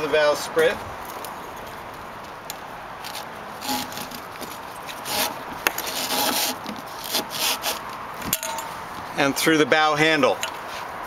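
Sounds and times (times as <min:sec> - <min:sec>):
strap rustling and scraping: 0:00.6 - 0:09.3.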